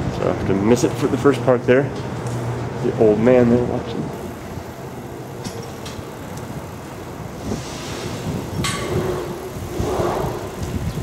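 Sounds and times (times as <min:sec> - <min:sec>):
train rumbling slowly: 0:04.1 - 0:11.0.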